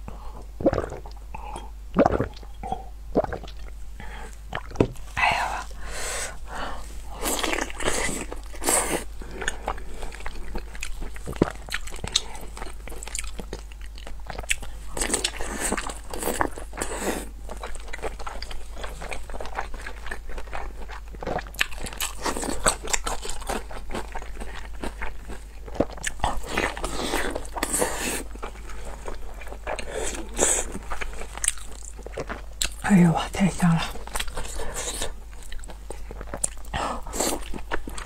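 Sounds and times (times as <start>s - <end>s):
wet chewing and mouth smacks: 7.2s - 16.9s, 17.5s - 32.8s, 34.0s - 38.0s.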